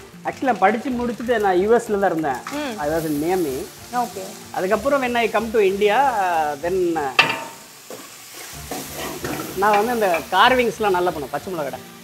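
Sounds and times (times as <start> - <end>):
food sizzling in a pot: 0.0 - 12.0
person talking: 2.4 - 7.2.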